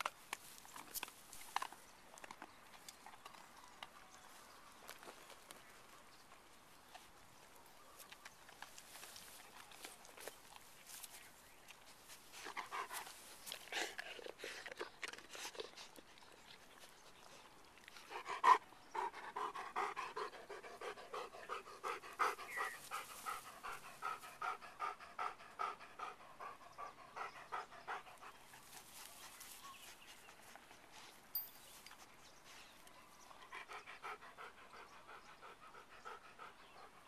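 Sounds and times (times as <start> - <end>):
dog panting hard: 18.0 - 31.2, 33.4 - 37.0.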